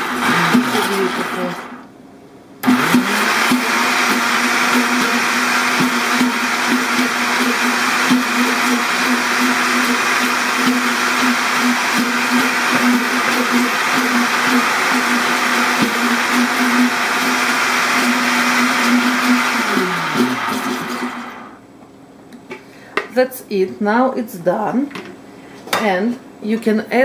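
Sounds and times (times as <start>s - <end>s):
blender whirring: 0.0s - 1.9s, 2.6s - 21.6s.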